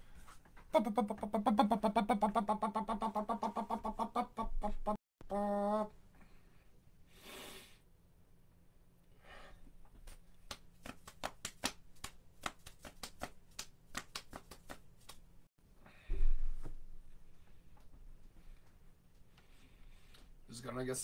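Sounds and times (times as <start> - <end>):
hands rubbing swishes: 10.1 - 15.3.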